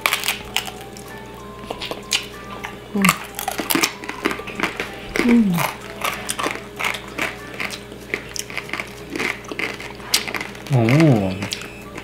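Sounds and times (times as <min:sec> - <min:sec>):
chewing crunchy food: 0:00.0 - 0:12.0
wet mouth sounds: 0:05.2 - 0:05.8.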